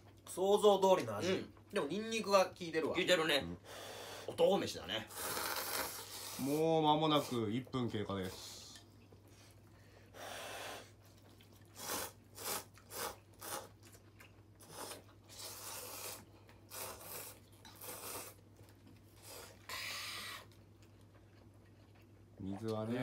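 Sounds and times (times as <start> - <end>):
noodles being slurped: 5.1 - 7.4, 11.4 - 18.5.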